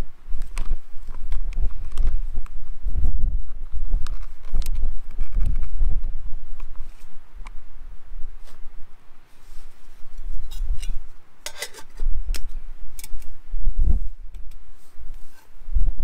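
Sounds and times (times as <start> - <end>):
microphone handling clicks: 3.5 - 6.8.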